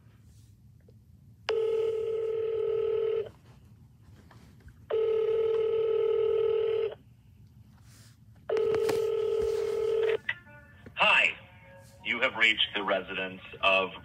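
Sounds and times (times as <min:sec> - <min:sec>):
phone ringback tone: 0:01.5 - 0:03.3, 0:04.9 - 0:07.0, 0:08.5 - 0:10.2.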